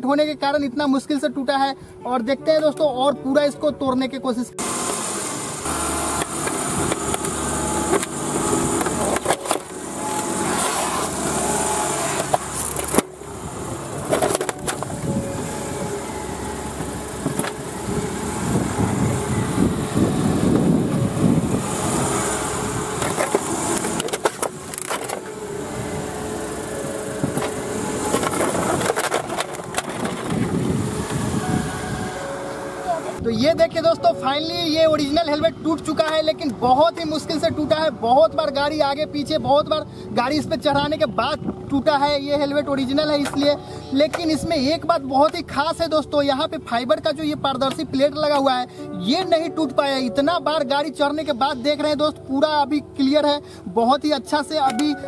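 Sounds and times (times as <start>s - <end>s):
car engine running: 4.6s - 33.2s
helmet shell cracking and crunching: 8.8s - 9.8s, 12.2s - 13.1s, 14.0s - 15.1s, 23.0s - 25.3s, 27.3s - 30.5s.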